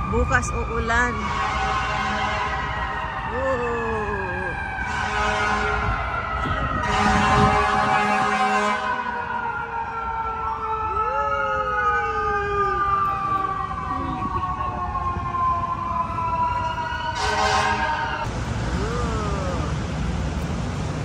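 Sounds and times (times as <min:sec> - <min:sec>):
loud siren blast: 0:00.0 - 0:19.8
emergency siren wailing: 0:00.0 - 0:20.3
street traffic: 0:00.0 - 0:21.0.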